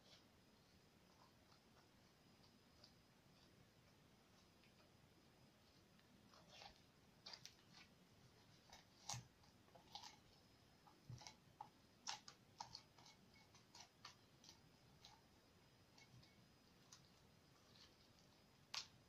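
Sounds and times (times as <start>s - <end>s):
slime squelching: 5.6s - 19.0s.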